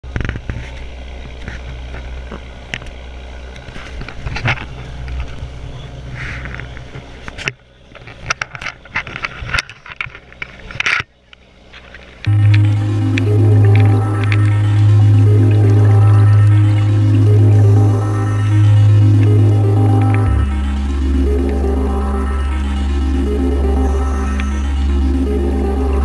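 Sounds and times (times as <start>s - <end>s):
boat engine rumble: 10.2s - 26.0s
music: 12.3s - 26.0s.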